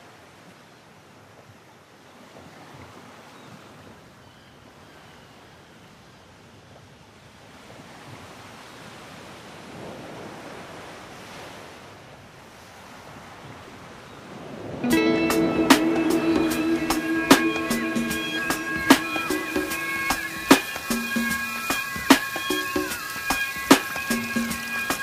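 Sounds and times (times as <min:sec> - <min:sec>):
faint steady rushing noise: 0:14.8 - 0:25.0.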